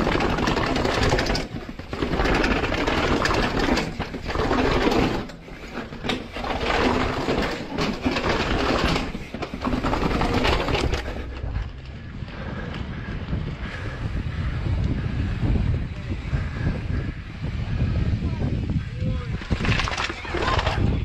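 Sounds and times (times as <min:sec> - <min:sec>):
mountain bike clattering down stairs: 0:00.0 - 0:13.9, 0:19.1 - 0:21.0.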